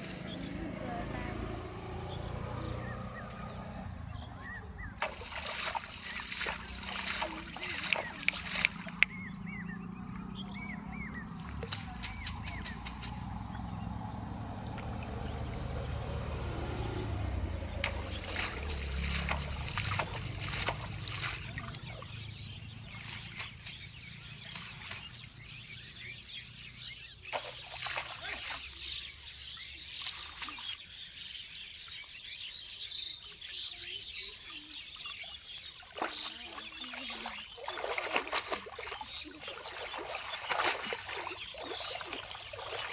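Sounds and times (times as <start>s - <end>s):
bird calls: 0.0s - 14.0s, 16.9s - 42.9s
water splashing and sloshing: 0.0s - 26.3s, 27.2s - 32.3s, 33.6s - 42.9s.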